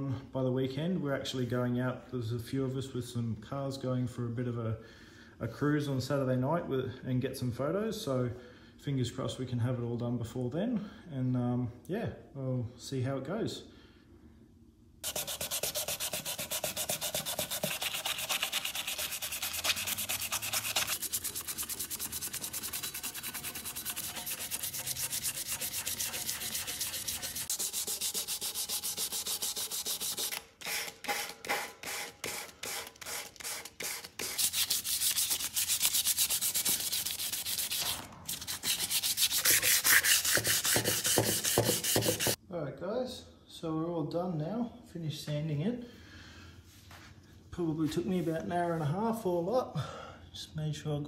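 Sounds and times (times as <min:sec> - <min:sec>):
sandpaper rubbing on metal: 0:15.0 - 0:42.4.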